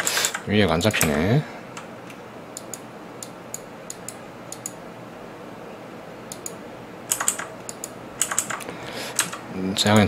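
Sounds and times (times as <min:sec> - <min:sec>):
keyboard keys clicking: 0:06.3 - 0:10.0.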